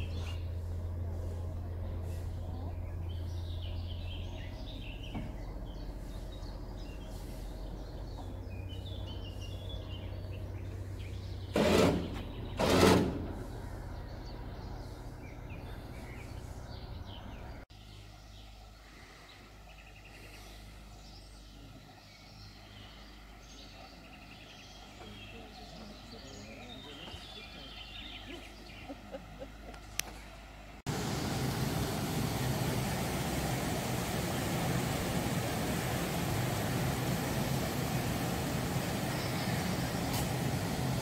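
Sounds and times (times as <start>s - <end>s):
birds chirping: 0.0s - 41.0s
boat engine humming: 0.0s - 41.0s
loud short blasts: 11.5s - 13.5s.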